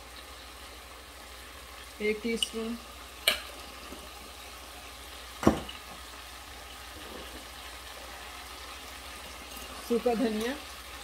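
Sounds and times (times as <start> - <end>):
chicken sizzling in a pot: 0.0 - 11.0
glass jar knocking on counter: 5.4 - 5.7.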